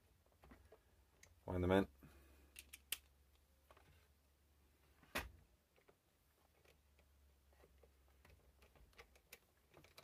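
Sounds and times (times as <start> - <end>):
faint small clicks: 2.5 - 3.8.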